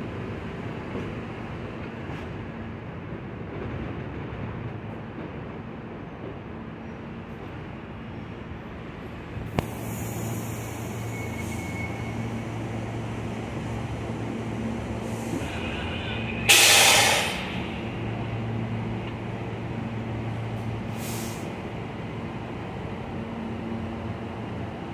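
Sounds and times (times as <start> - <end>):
subway train humming: 0.0 - 24.9
air brakes hissing: 9.6 - 12.4, 15.0 - 17.9, 20.9 - 21.6.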